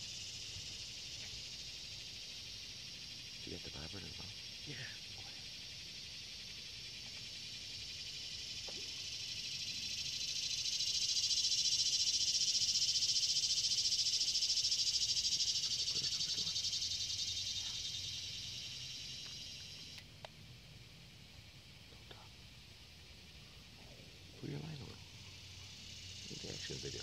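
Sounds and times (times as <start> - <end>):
high insect buzz: 0.0 - 27.0.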